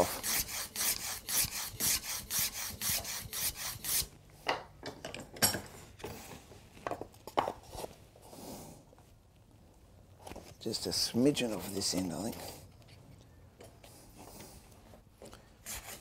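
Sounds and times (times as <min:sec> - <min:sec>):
hand plane strokes on wood: 0:00.0 - 0:04.0.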